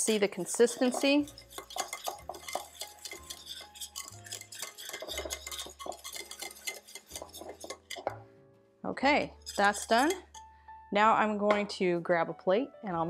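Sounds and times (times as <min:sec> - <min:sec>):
whisk scraping a metal saucepan: 0:00.0 - 0:08.2, 0:09.2 - 0:10.5.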